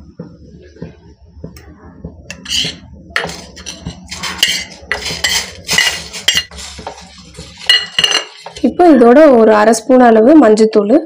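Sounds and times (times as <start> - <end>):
spoon scraping metal pot: 2.3 - 8.7.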